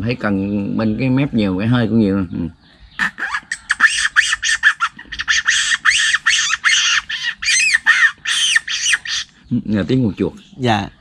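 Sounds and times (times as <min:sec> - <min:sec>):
man imitating rat squeaks: 0:03.0 - 0:09.7.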